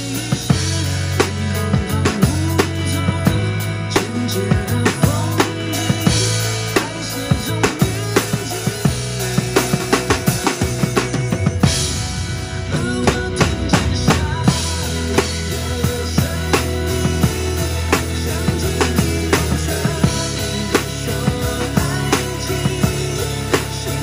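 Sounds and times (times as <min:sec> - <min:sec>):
drum kit groove: 0:00.0 - 0:24.0
pop song backing track: 0:00.0 - 0:24.0
cymbal crashes: 0:11.7 - 0:15.4.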